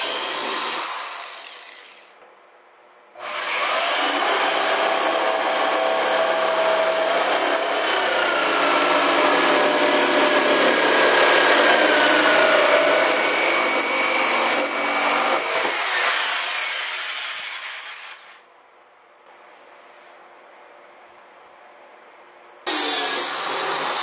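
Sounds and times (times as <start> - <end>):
jigsaw cutting plastic: 0.0 - 2.1, 3.2 - 18.4.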